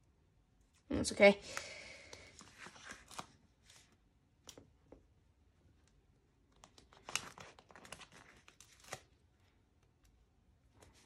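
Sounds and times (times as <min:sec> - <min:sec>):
sticker sheet rustling and crinkling: 0:06.5 - 0:09.6.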